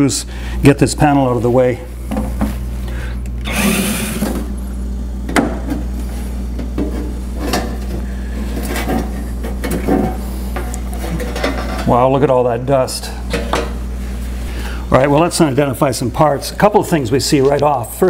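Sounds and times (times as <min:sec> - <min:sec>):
refrigerator compressor humming: 0:00.0 - 0:18.0
cordless driver whirring: 0:03.4 - 0:04.5.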